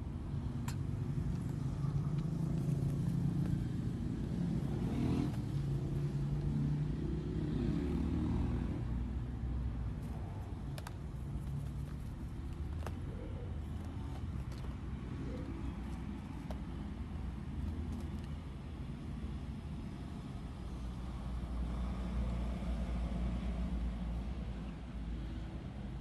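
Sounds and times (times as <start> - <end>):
vehicle engine running: 0.0 - 7.0.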